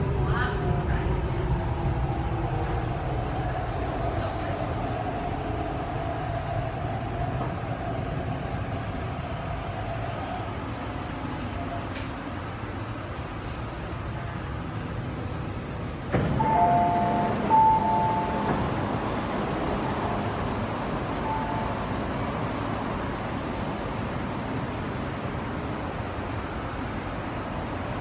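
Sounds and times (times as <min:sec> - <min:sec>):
train rumbling: 0:00.0 - 0:28.0
two-tone beeps: 0:16.4 - 0:18.7, 0:21.2 - 0:22.0.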